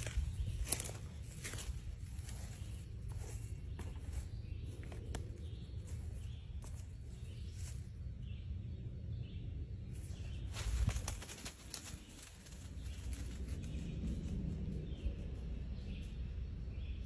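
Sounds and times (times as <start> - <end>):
rustling in dry leaves: 0.0 - 5.0, 10.0 - 14.4
low microphone rumble: 0.0 - 11.2, 12.4 - 17.0.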